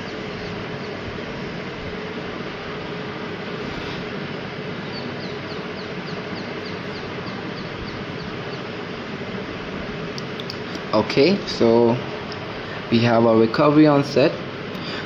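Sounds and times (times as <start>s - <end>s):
high falling chirps: 4.6s - 8.9s.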